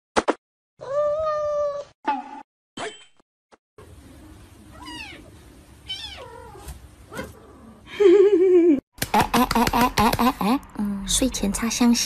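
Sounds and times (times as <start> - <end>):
cat meowing: 5.9 - 6.6.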